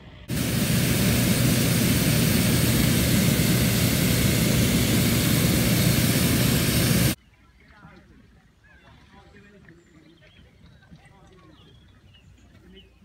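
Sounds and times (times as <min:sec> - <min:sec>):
inflator fan engine roar: 0:00.0 - 0:07.2.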